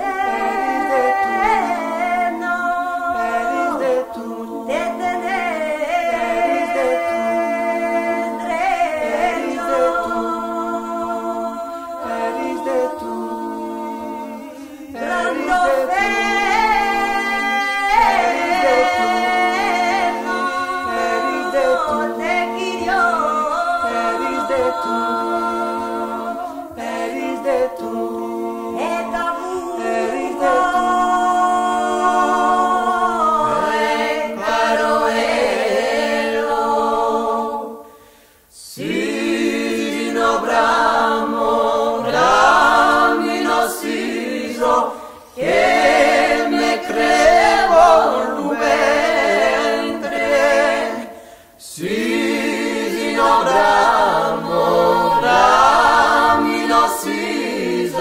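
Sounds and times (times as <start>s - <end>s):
a cappella group singing harmony: 0.0s - 58.0s
catch of breath: 37.8s - 38.5s, 44.9s - 45.4s, 51.1s - 51.6s.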